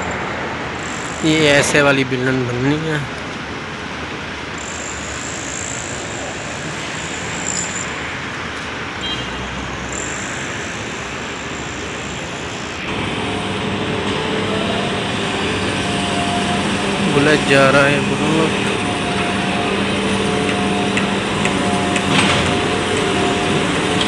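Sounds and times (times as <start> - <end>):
street traffic noise: 0.0 - 24.0
truck engine humming: 9.9 - 24.0.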